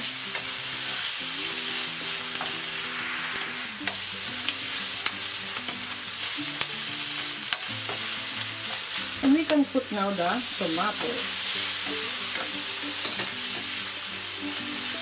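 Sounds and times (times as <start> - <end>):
onion sizzling in a frying pan: 0.0 - 15.0
metal spoon clicking on pan: 7.5 - 8.0.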